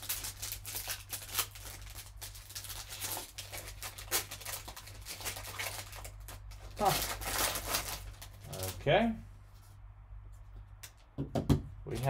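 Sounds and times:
foil pack crinkling: 0.0s - 8.9s.

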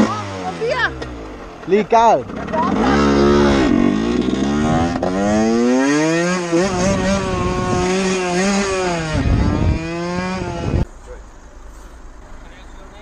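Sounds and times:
motorcycle engine revving hard: 0.0s - 1.4s, 2.0s - 10.8s.

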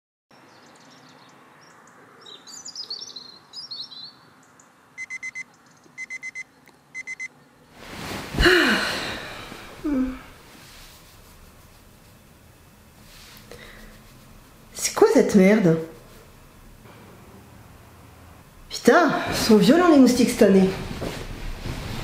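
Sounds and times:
birds chirping: 0.3s - 6.7s
alarm clock beeping: 5.0s - 7.3s.

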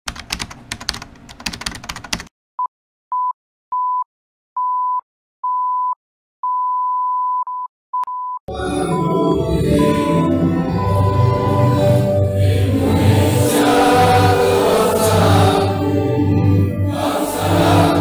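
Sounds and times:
morse code beeps: 4.6s - 12.6s.

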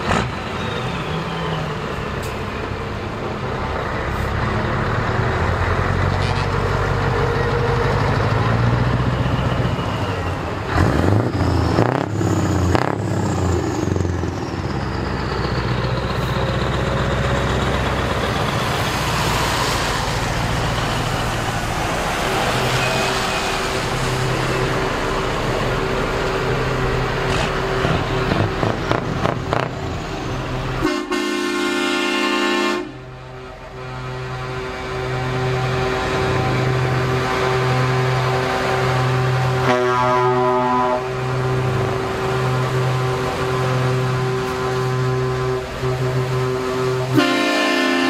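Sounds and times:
diesel trucks driving past: 0.0s - 48.0s
truck horn: 6.0s - 6.8s, 30.7s - 48.0s.

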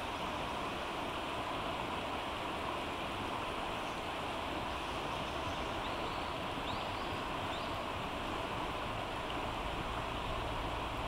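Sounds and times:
stream rushing: 0.0s - 11.0s
faint bird chirps: 4.7s - 7.8s.

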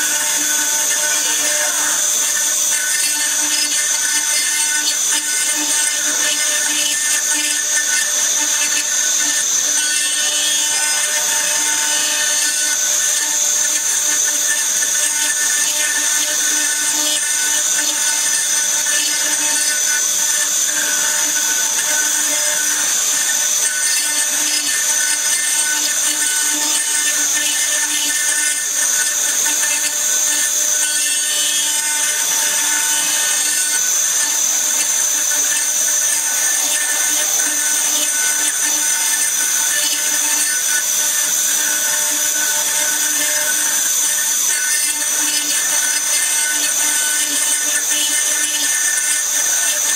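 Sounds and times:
grinding hiss of stone cutting: 0.0s - 49.9s
router spindle whine: 0.0s - 49.9s.

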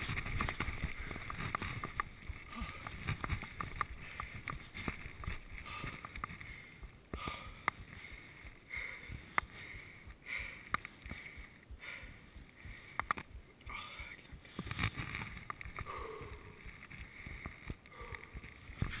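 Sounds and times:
bike tyres rumbling on gravel: 0.0s - 7.3s
bike clicks and rattles: 0.0s - 11.4s, 12.9s - 13.4s, 14.1s - 19.0s.

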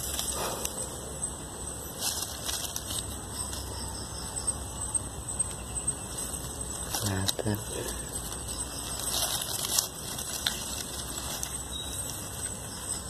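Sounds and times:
dry leaves and feathers rustling: 0.0s - 13.0s
small crackles and clicks: 6.2s - 13.0s.

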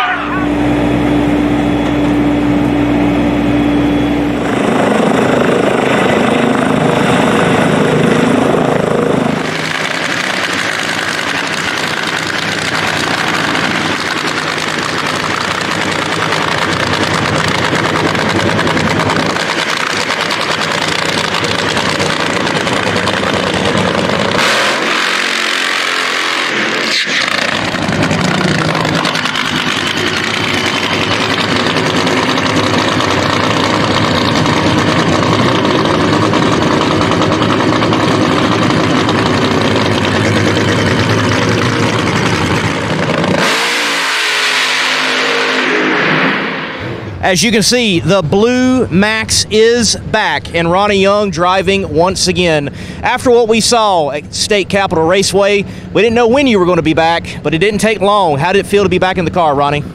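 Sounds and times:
drag racing engine running: 0.0s - 59.9s.

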